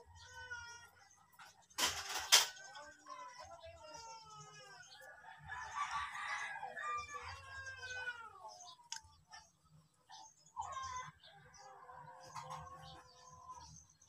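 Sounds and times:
rooster crowing: 5.2 - 8.0.

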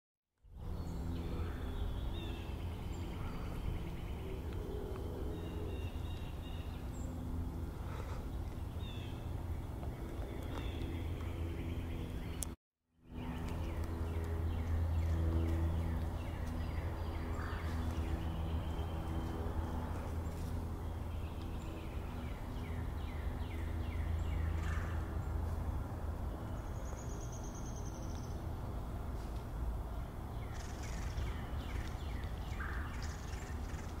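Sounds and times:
steady low hum: 0.4 - 34.0.

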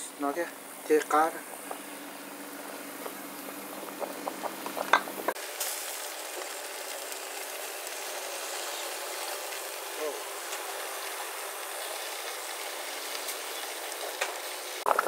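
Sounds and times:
fish sizzling on grill: 0.0 - 15.0
glass bottle clinking on pot: 4.8 - 5.1.

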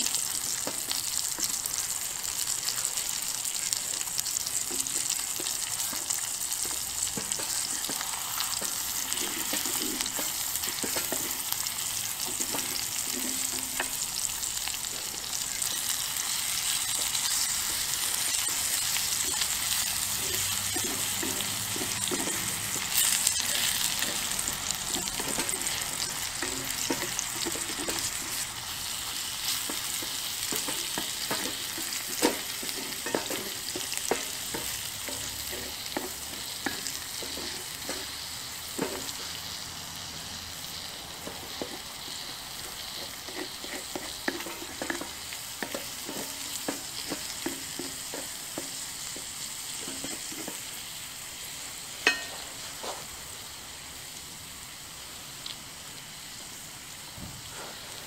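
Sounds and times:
food sizzling in a skillet: 0.0 - 58.0
wooden spatula scraping pan: 4.5 - 14.0, 18.1 - 39.4, 41.2 - 50.8.

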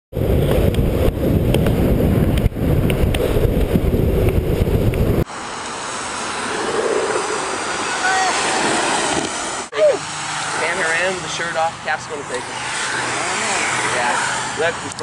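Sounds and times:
wind buffeting microphone: 0.1 - 5.3.

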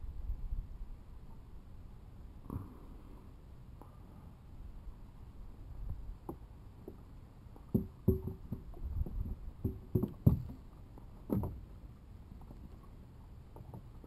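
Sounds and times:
fishing gear knocking on kayak: 7.7 - 10.6.

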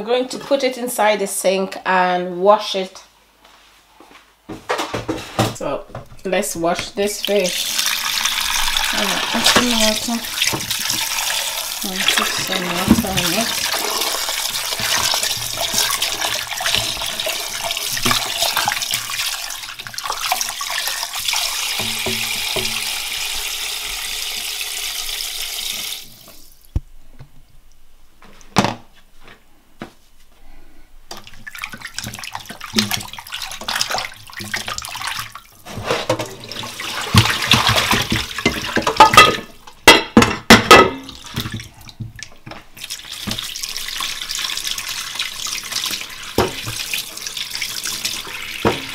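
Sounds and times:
water sloshing in pot: 5.6 - 24.3, 31.1 - 48.9
tap water splashing into pot: 6.8 - 26.5, 31.1 - 48.9
pot knocking: 21.7 - 23.0, 37.1 - 41.2.

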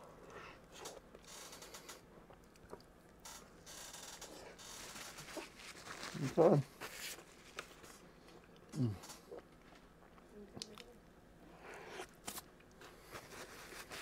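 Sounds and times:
paper wrapper rustling: 4.8 - 7.9, 13.1 - 14.0
person humming mm: 8.7 - 9.2.

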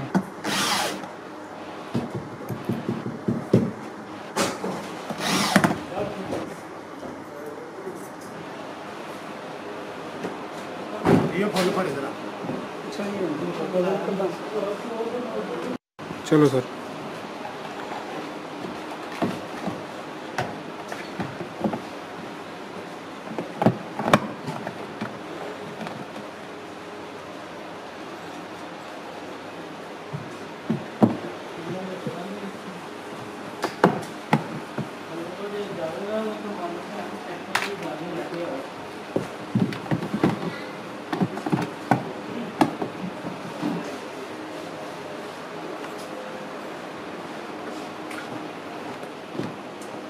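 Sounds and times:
cordless drill driving a screw: 0.4 - 1.0, 5.2 - 5.7
handling clicks and knocks: 39.1 - 43.8.

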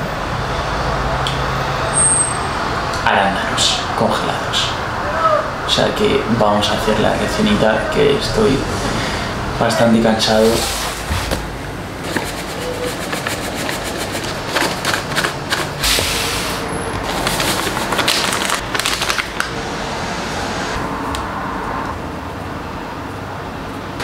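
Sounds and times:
utensils and containers clattering: 10.4 - 19.5.

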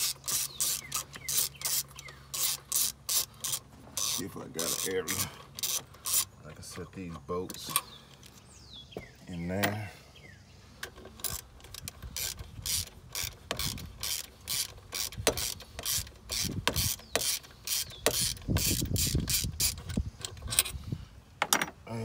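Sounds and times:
socket ratchet clicking: 0.0 - 6.3, 10.8 - 20.8.

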